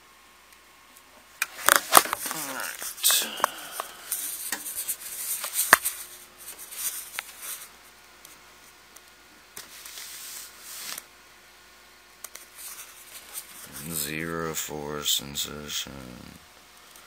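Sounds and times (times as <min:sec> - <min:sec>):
camera handling rubbing and rustling: 0:01.4 - 0:03.1, 0:04.2 - 0:07.7.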